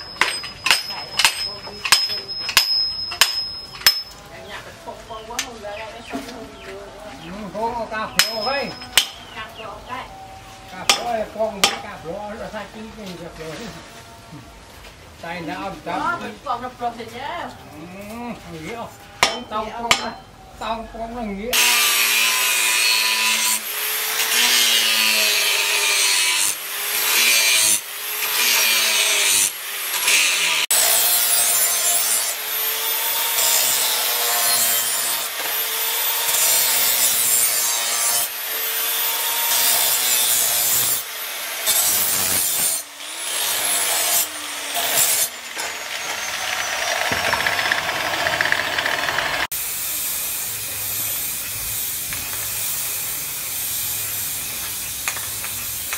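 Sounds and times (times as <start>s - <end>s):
angle grinder sharpening blade: 21.6s - 55.9s.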